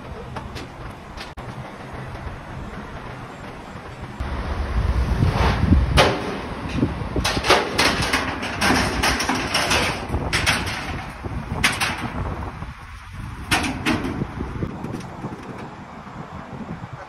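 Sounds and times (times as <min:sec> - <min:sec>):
metal ramps clanking: 0:00.0 - 0:04.2, 0:05.2 - 0:15.8
low rumble: 0:01.4 - 0:13.5.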